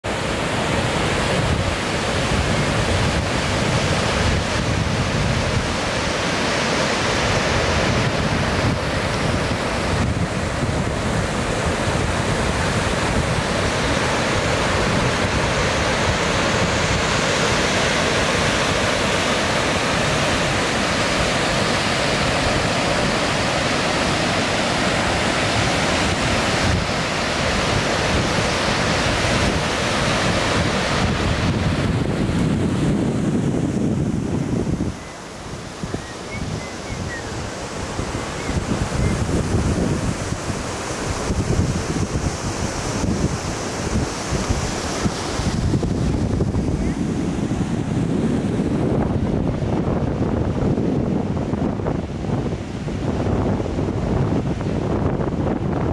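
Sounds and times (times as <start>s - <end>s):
waterfall and rapids rushing: 0.0s - 55.9s
wind buffeting microphone: 0.0s - 55.9s.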